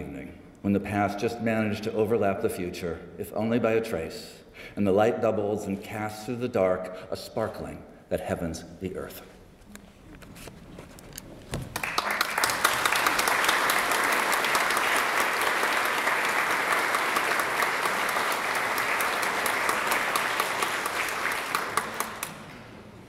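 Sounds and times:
audience applause: 0:11.6 - 0:23.0.

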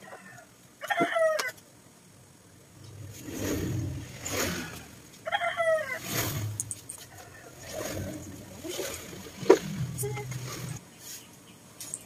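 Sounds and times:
rooster crowing: 0:00.0 - 0:01.6, 0:05.2 - 0:06.4
vehicle rumbling past: 0:02.8 - 0:05.1.

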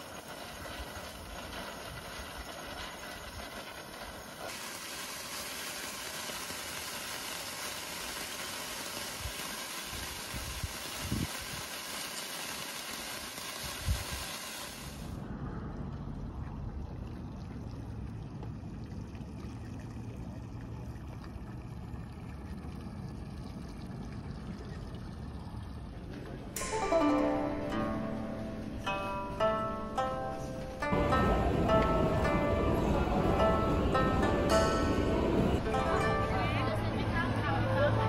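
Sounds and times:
sparklers fizzing: 0:00.0 - 0:15.2
boat engine idling: 0:30.7 - 0:38.0.

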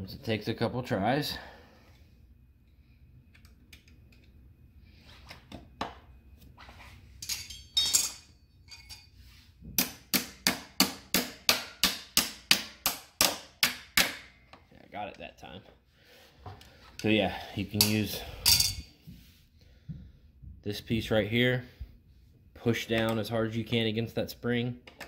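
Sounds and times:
metal tool clicks and clinks: 0:07.2 - 0:09.1.

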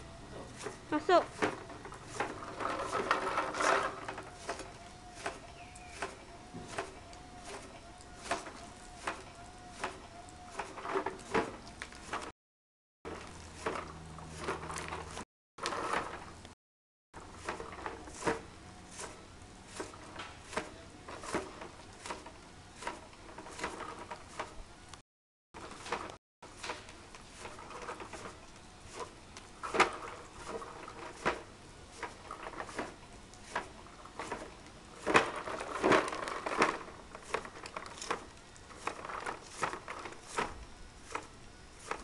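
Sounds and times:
rustling scrape: 0:00.0 - 0:12.3, 0:13.1 - 0:16.6, 0:17.2 - 0:24.7, 0:25.6 - 0:42.0
brush knocking: 0:00.4 - 0:12.3.

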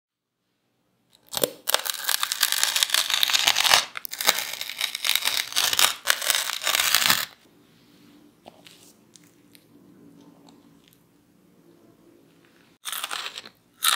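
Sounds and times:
knife crunching through fried crust: 0:01.3 - 0:07.3.

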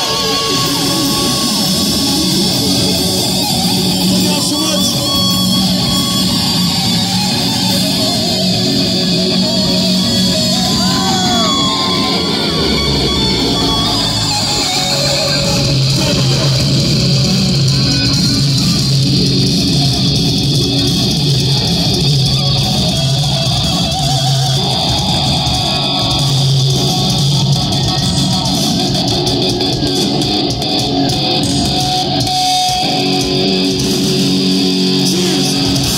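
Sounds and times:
bass guitar: 0:00.0 - 0:35.9
electric guitar: 0:00.0 - 0:35.9.

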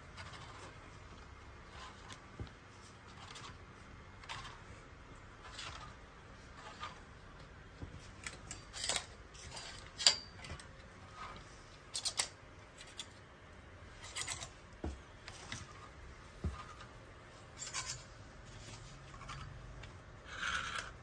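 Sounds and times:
hangers sliding on metal rail: 0:08.2 - 0:10.4.

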